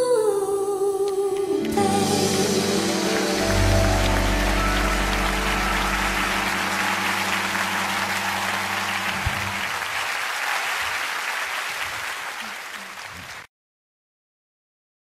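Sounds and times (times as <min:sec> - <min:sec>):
held chord of music: 0:01.5 - 0:09.9
audience applauding: 0:01.5 - 0:13.5.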